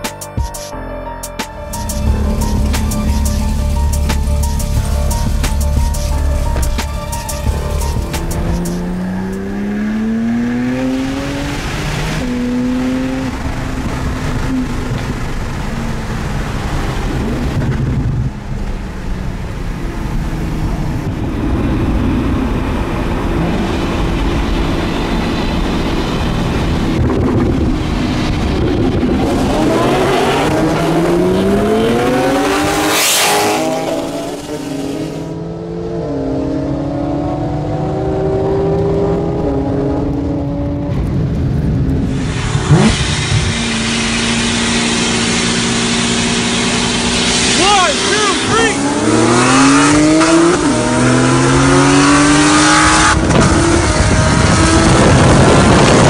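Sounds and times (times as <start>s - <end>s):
road and wind noise: 0.0s - 56.0s
car engine accelerating: 1.5s - 56.0s.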